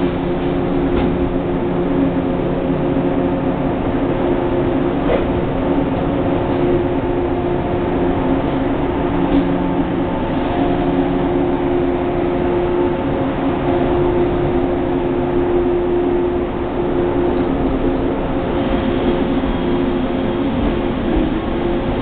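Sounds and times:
electric train pulling out: 0.0 - 22.0.

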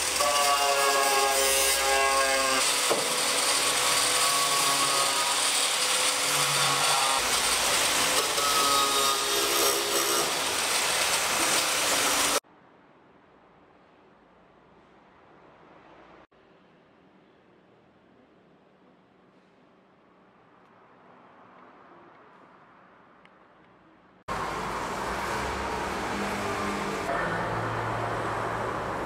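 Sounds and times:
power tools grinding: 0.0 - 12.4.

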